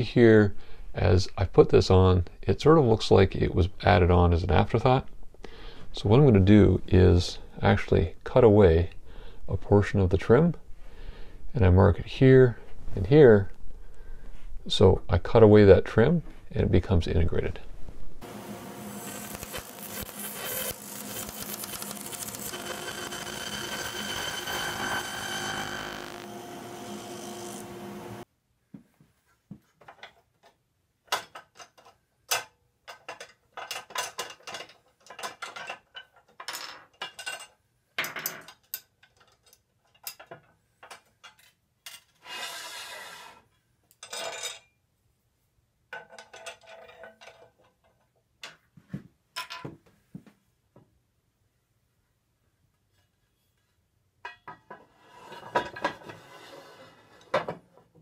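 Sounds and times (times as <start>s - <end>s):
table saw cutting wood: 18.2s - 28.2s.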